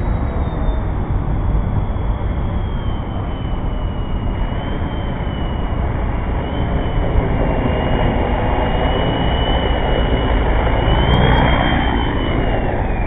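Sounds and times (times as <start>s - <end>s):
helicopter motor and rotor whine: 0.0s - 13.0s
low rumble: 5.7s - 13.0s.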